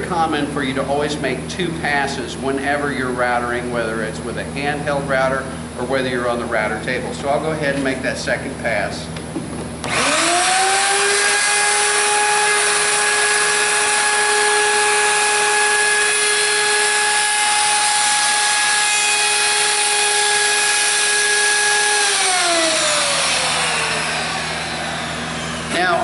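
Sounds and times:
router high whine: 9.8s - 26.0s
router motor winding down: 9.8s - 26.0s.

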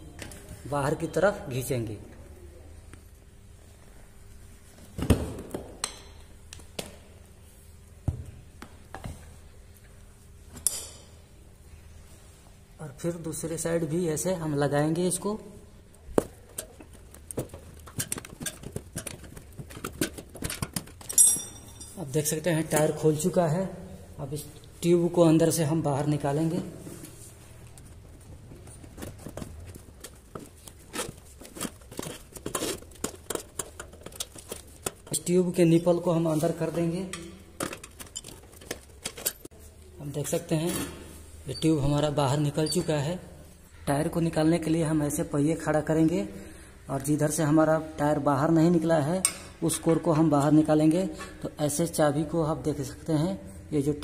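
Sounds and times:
tyre levers clinking on metal rim: 16.4s - 22.0s, 29.0s - 35.3s, 37.1s - 39.5s, 49.2s - 50.5s.

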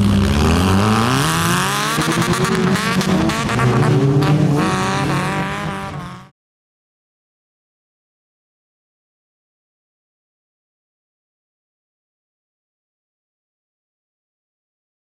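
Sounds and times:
car engine revving: 0.0s - 6.3s.

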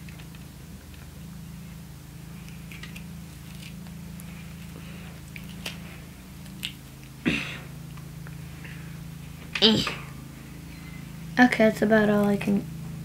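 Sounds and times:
steady low hum: 0.0s - 13.0s
pepper being torn open: 2.4s - 5.8s, 6.4s - 7.2s.

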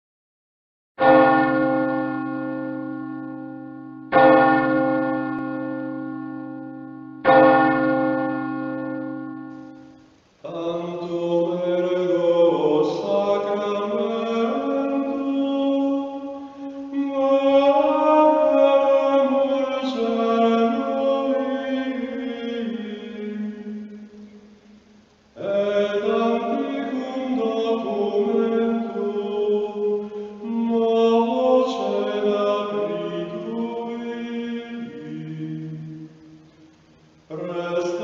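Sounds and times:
deep bell ringing: 1.0s - 10.0s
slow chant of sustained voices: 7.3s - 38.0s.

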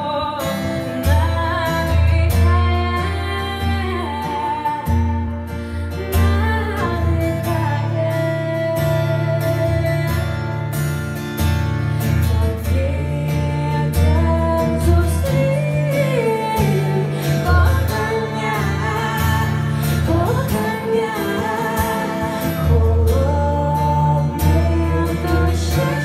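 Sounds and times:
man singing: 0.0s - 2.5s, 12.4s - 26.0s
woman singing: 0.0s - 10.9s, 12.0s - 26.0s
acoustic guitar playing: 0.0s - 26.0s.

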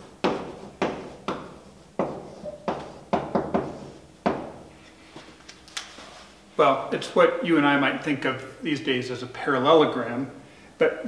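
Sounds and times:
chalk tapping and scratching: 0.2s - 4.5s.

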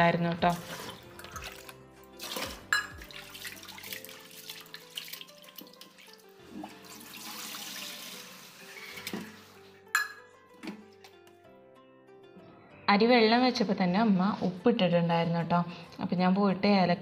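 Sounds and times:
water pouring into steel sink: 0.5s - 9.6s.

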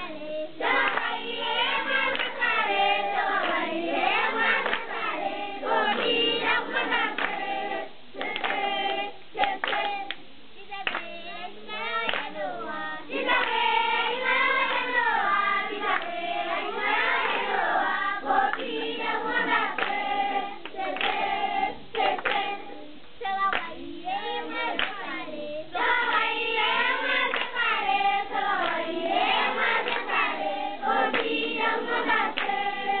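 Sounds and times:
children singing: 0.0s - 33.0s
hand clapping: 0.7s - 3.6s, 4.2s - 5.1s, 5.9s - 7.4s, 8.2s - 8.8s, 9.4s - 10.2s, 10.8s - 11.1s, 12.0s - 12.4s, 18.5s - 20.0s, 20.6s - 21.3s, 21.9s - 22.6s, 23.4s - 23.8s, 24.7s - 25.0s, 27.0s - 27.8s, 28.6s - 30.3s, 31.0s - 32.6s.

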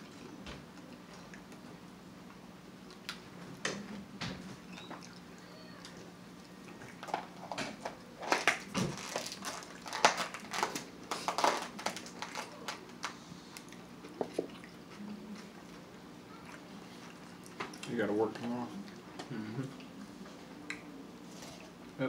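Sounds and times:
crisp chewing crunches: 8.2s - 15.8s.

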